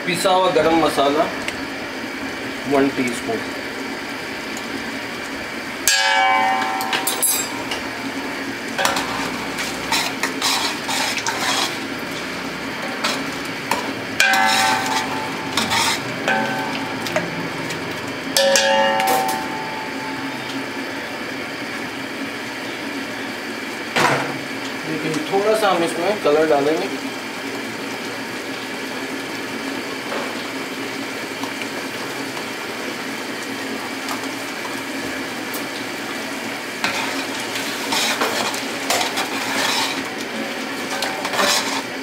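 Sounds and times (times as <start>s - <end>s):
spoon clanging against metal pot: 5.9s - 8.0s, 8.8s - 11.7s, 12.8s - 20.9s
metal spoon scraping a pot: 8.8s - 17.3s, 36.8s - 40.2s, 40.8s - 42.0s.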